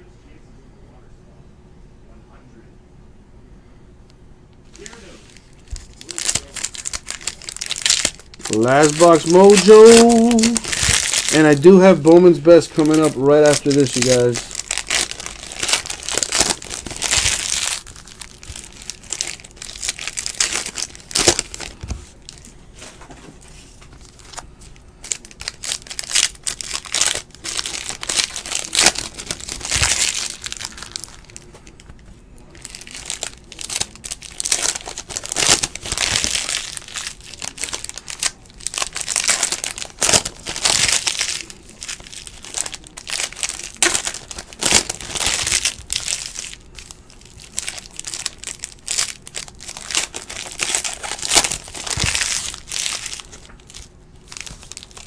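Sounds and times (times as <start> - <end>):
cards being handled: 4.6 - 19.2
foil wrappers crinkling and tearing: 4.7 - 55.0.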